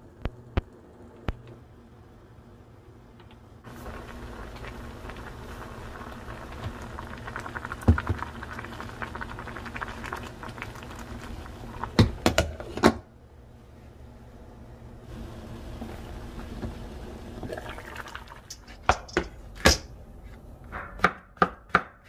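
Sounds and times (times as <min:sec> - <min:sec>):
soup bubbling: 0:03.7 - 0:12.2, 0:17.2 - 0:19.5.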